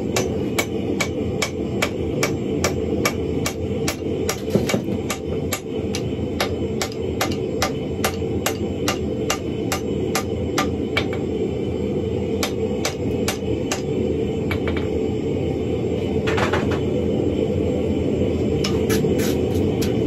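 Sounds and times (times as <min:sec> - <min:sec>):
hammer striking iron on anvil: 0:00.0 - 0:11.2, 0:12.4 - 0:13.9.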